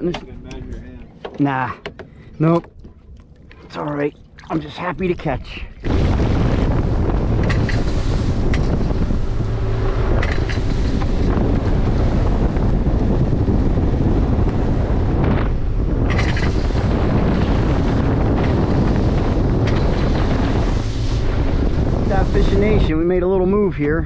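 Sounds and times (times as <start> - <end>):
outboard motor drone: 0.0 - 24.0
water rushing along hull: 0.0 - 24.0
wind buffeting microphone: 0.0 - 24.0.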